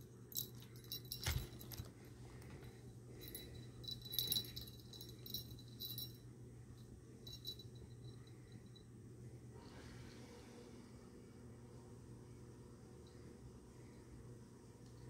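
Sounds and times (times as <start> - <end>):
small metal bell jingling: 0.3 - 1.9, 3.2 - 8.9.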